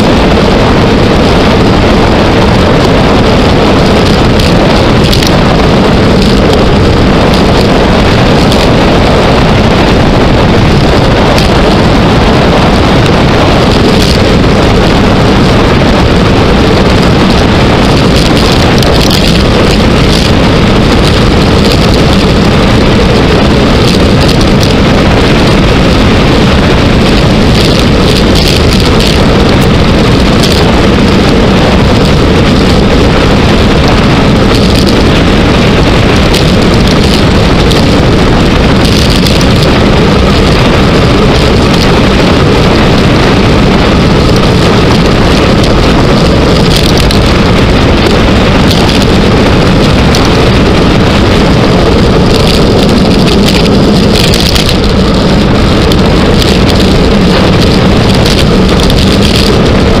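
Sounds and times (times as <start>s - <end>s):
wind buffeting microphone: 0.0s - 60.0s
brief crackles: 4.0s - 5.3s, 18.2s - 20.3s, 27.5s - 29.2s, 34.5s - 35.0s, 38.8s - 39.7s, 46.6s - 47.3s, 48.7s - 49.1s, 52.3s - 54.8s, 57.6s - 59.6s.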